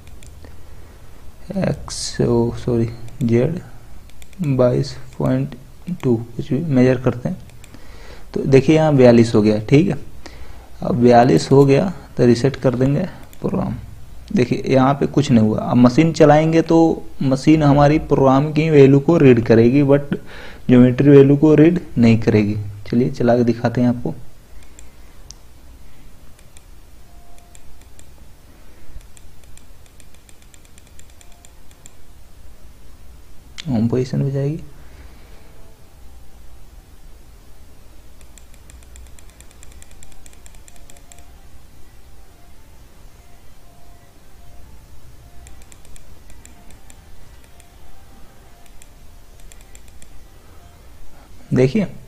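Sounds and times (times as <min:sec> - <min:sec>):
computer mouse clicks: 0:00.0 - 0:00.6, 0:03.0 - 0:03.3, 0:04.0 - 0:05.3, 0:07.4 - 0:07.8, 0:13.2 - 0:13.5, 0:24.5 - 0:25.4, 0:26.3 - 0:26.7, 0:27.3 - 0:28.2, 0:29.0 - 0:32.0, 0:38.1 - 0:41.3, 0:45.4 - 0:47.8, 0:48.6 - 0:50.2
low steady hum: 0:00.0 - 0:52.0.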